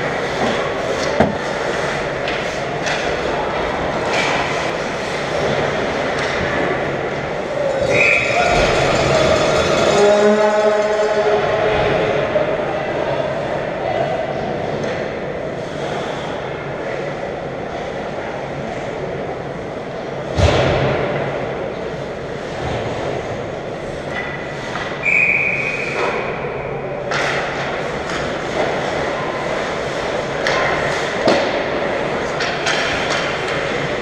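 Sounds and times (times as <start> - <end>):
arena noise and skating: 0.0 - 34.0
high whistle-like tone: 7.9 - 8.4, 25.0 - 26.2.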